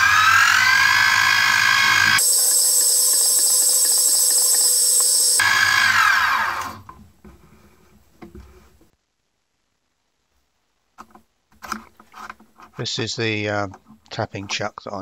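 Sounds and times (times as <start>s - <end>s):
mill spindle motor whining: 0.0s - 6.8s.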